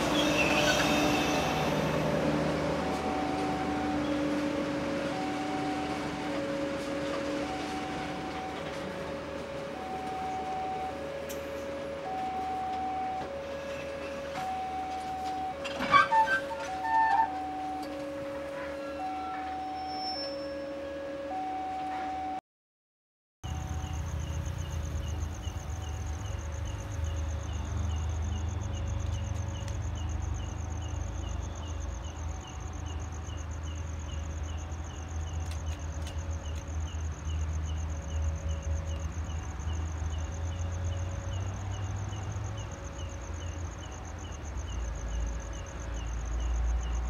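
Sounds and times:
insect chirp: 0.0s - 8.9s, 23.5s - 47.0s
diesel train idling: 0.0s - 20.3s, 23.4s - 47.0s
crickets trilling: 0.0s - 20.6s, 23.5s - 47.0s.

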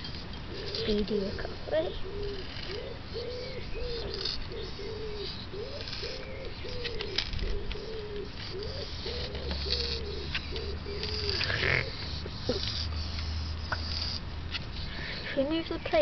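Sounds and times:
hedgehog wheezing: 7.8s - 15.4s.

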